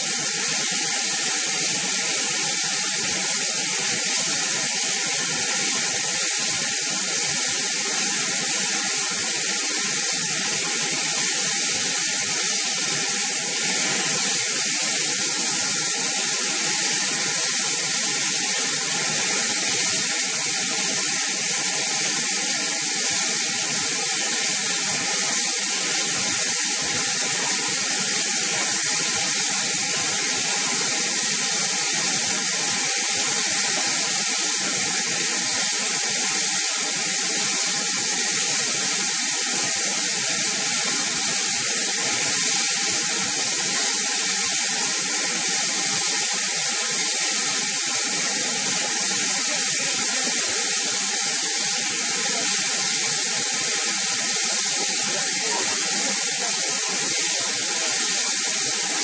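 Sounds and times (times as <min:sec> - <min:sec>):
steam hissing: 0:00.0 - 0:59.0.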